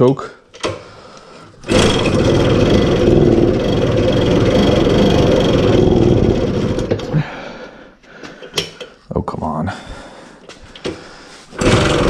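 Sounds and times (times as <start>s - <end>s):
failed engine starting attempts: 1.6s - 7.5s, 11.5s - 12.0s
moped engine running unevenly: 1.7s - 7.1s.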